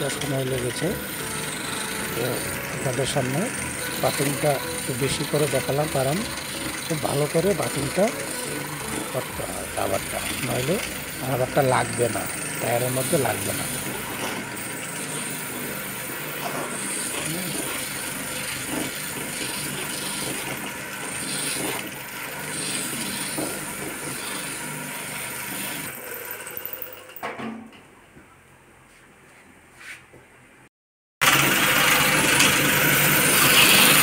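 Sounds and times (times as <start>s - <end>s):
buffing wheel scrubbing rubber: 0.2s - 24.7s.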